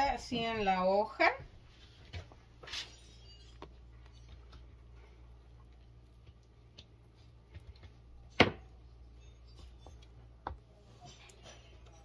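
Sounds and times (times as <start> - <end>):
wooden spoon tapping and scraping: 5.7 - 12.0.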